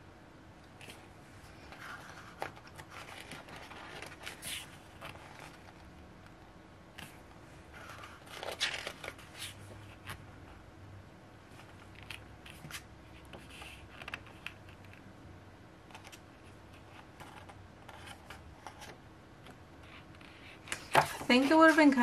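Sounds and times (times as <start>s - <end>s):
pages turning and rustling: 0.8s - 5.9s, 7.0s - 10.3s, 11.5s - 15.0s, 15.9s - 19.0s.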